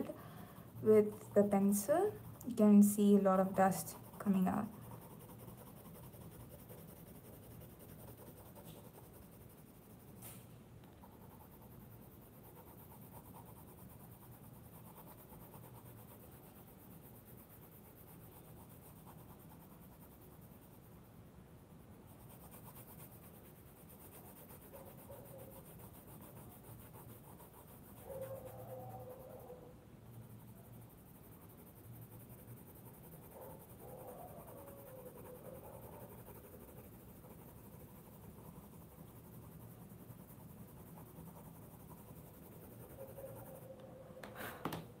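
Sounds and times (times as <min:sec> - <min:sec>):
pencil scratching on paper: 0:00.0 - 0:21.1, 0:22.0 - 0:44.9.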